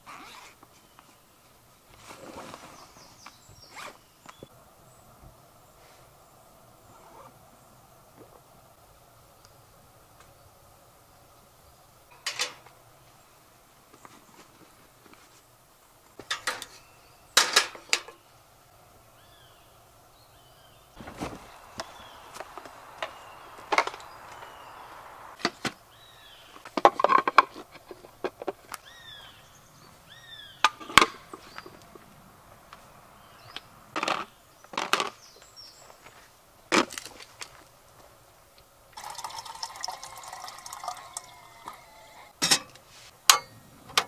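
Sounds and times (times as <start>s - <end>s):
bird chirping: 2.6s - 5.8s, 16.6s - 17.4s, 19.1s - 26.7s, 28.7s - 31.9s, 33.1s - 36.2s
camp gear knocking and clattering: 12.1s - 12.7s, 16.2s - 16.8s, 17.4s - 18.1s, 21.0s - 24.2s, 26.7s - 28.7s, 34.0s - 35.3s.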